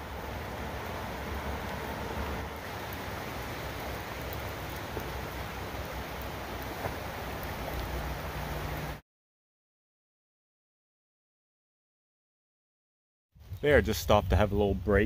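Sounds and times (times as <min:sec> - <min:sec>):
light rain hiss: 0:00.0 - 0:09.0
faint drip ticks: 0:02.7 - 0:08.1.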